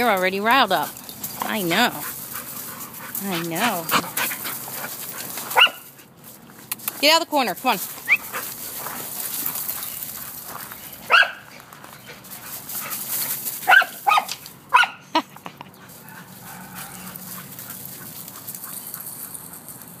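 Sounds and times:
dog barking: 5.6 - 5.9, 11.1 - 11.5, 13.7 - 15.0.

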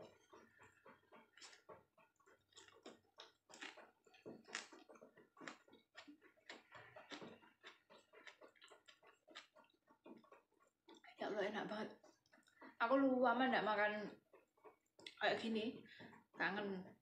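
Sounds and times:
wet mouth clicks: 0.0 - 11.2, 11.9 - 12.8, 14.6 - 15.2
faint chewing: 0.0 - 17.0.

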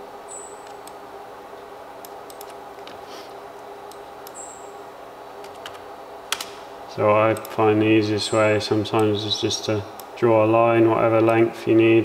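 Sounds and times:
steady low hum: 0.0 - 12.0
computer mouse clicks: 2.0 - 2.6.

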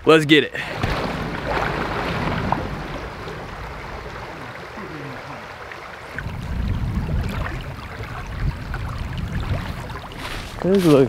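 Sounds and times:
creek water running over rocks: 0.7 - 11.0
low rumble: 6.1 - 10.0.

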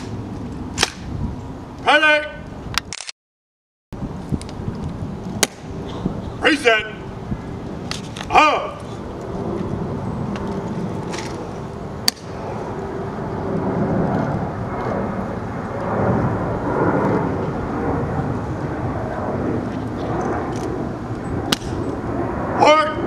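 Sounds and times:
airplane rumbling overhead: 0.0 - 3.0, 4.0 - 23.0.

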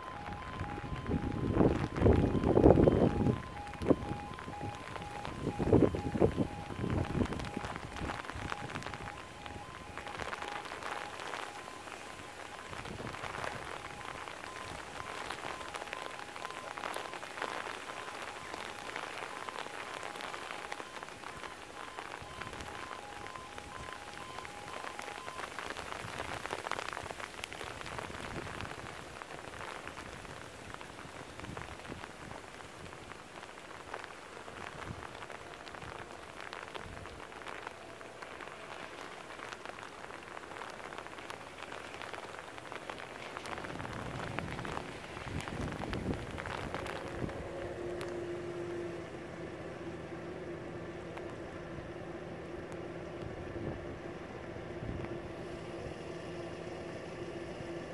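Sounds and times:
level crossing alarm tone: 0.0 - 26.8
hailstones falling: 0.0 - 48.2.

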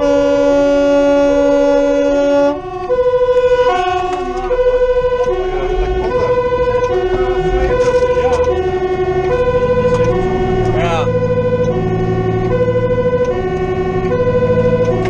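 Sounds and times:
air horn blast: 0.0 - 11.8
two-tone fire engine siren: 0.0 - 15.0.

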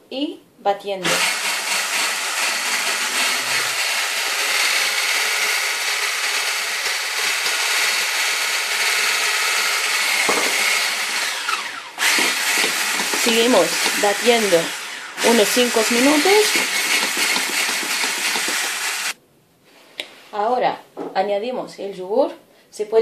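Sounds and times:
hand blender whisking batter: 1.0 - 19.2.

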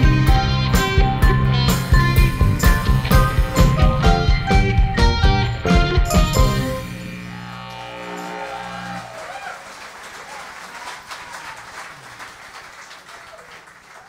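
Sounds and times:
live band chord: 0.0 - 9.1
audience cheering: 7.2 - 14.0
audience applause: 7.7 - 14.0.

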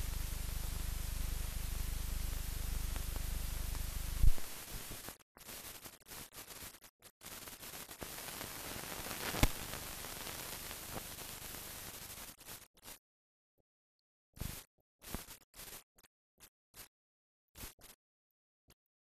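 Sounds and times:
film track hiss and static: 0.0 - 13.0.

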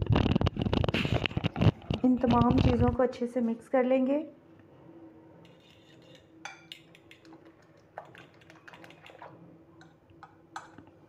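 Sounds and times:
metal spoon beating egg in bowl: 5.5 - 10.0.

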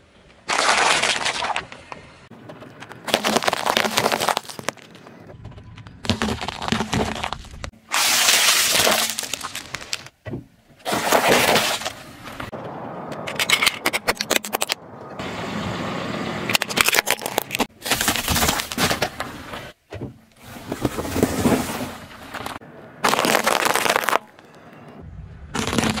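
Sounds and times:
tyre crushing brittle objects: 0.5 - 1.8, 2.6 - 5.2, 6.0 - 10.2, 10.8 - 12.0, 16.6 - 19.2, 20.6 - 24.5, 25.6 - 26.0.

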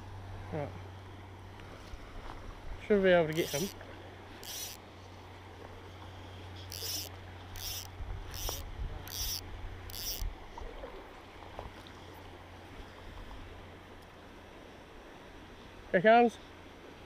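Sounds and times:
fly line zipping: 3.3 - 3.8, 4.4 - 4.8, 6.6 - 10.3.

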